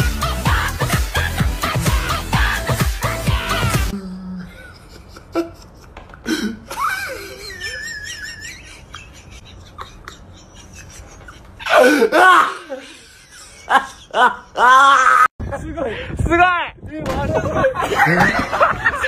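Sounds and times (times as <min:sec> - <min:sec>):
pop music: 0:00.0 - 0:04.0
person giggling: 0:04.3 - 0:14.8, 0:17.5 - 0:19.0.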